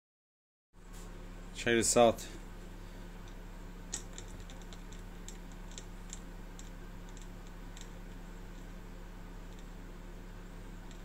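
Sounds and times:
light gear clicks and ticks: 0:03.2 - 0:08.7.

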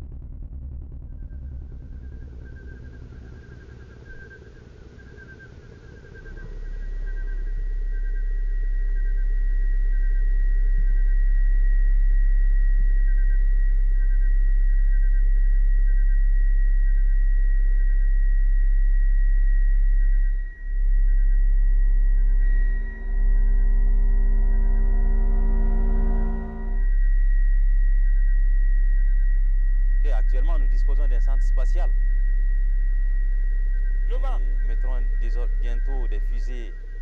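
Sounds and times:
deep steady hum: 0:00.0 - 0:37.0
faint chirp: 0:01.9 - 0:37.0
thin high tone: 0:34.1 - 0:37.0.

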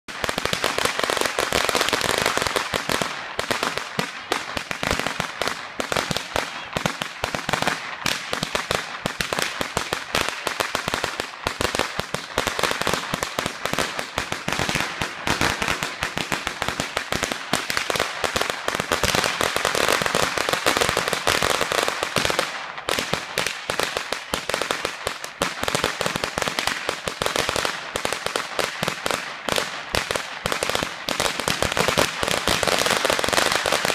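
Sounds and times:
firecrackers crackling: 0:00.1 - 0:33.9.

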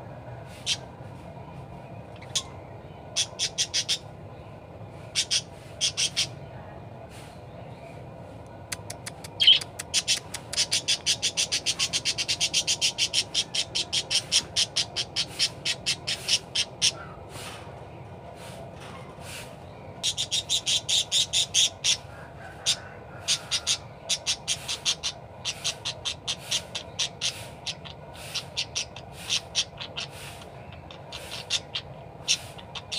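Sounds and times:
budgerigar chirping: 0:02.2 - 0:02.5, 0:03.2 - 0:04.0, 0:05.1 - 0:06.3, 0:08.8 - 0:17.0, 0:20.0 - 0:22.0, 0:22.6 - 0:32.9.

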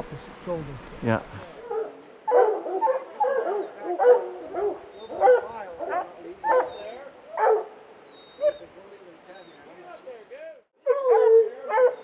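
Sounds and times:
hunting dogs baying: 0:01.6 - 0:09.8, 0:10.8 - 0:12.0.

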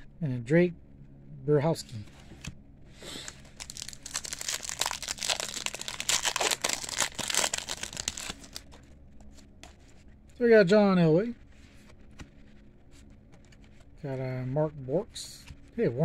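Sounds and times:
foil wrapper crinkling and tearing: 0:03.1 - 0:08.8.

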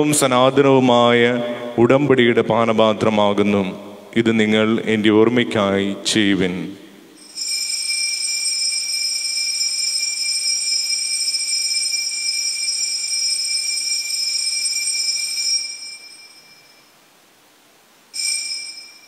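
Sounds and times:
altar bell ringing: 0:07.2 - 0:17.0, 0:18.1 - 0:19.0.

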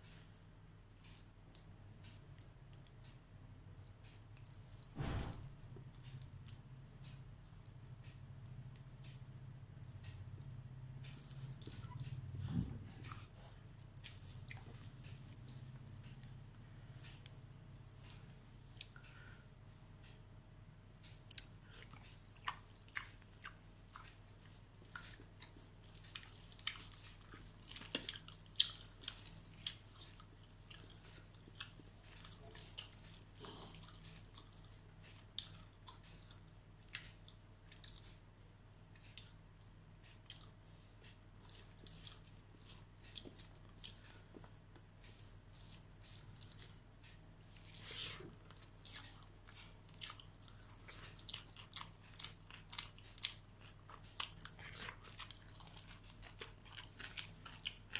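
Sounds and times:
wet chewing and mouth smacks: 0:03.8 - 0:04.9, 0:09.8 - 0:16.4, 0:21.2 - 0:57.9.

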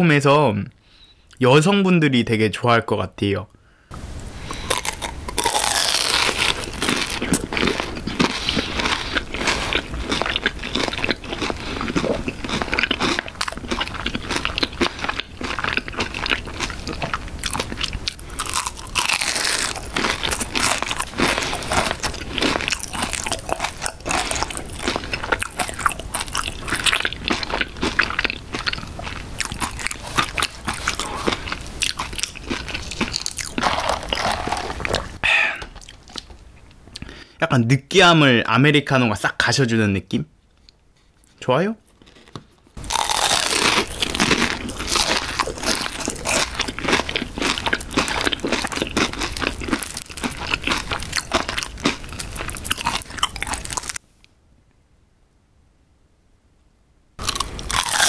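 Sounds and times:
crispy pie crunching: 0:04.5 - 0:35.2, 0:41.9 - 0:54.0, 0:57.2 - 0:58.0.

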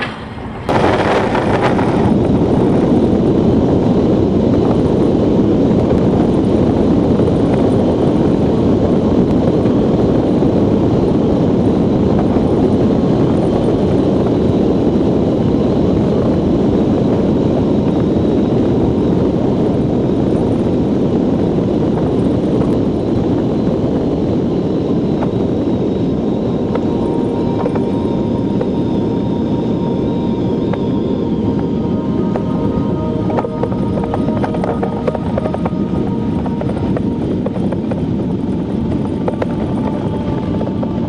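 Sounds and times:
faint high tones: 0:26.0 - 0:41.0.

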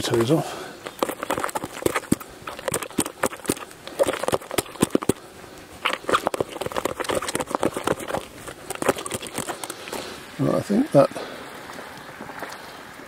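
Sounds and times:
masher squelching through mash: 0:00.0 - 0:10.1.

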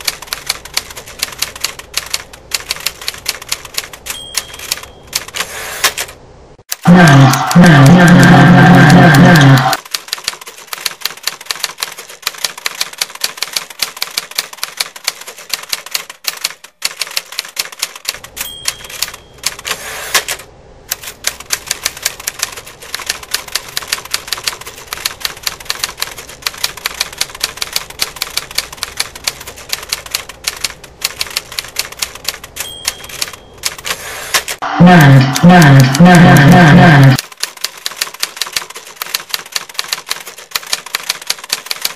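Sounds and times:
typewriter keys clacking: 0:00.0 - 0:07.6, 0:08.8 - 0:34.6, 0:37.2 - 0:41.9
typewriter bell ding: 0:04.0 - 0:05.9, 0:18.2 - 0:20.2, 0:32.3 - 0:34.5.

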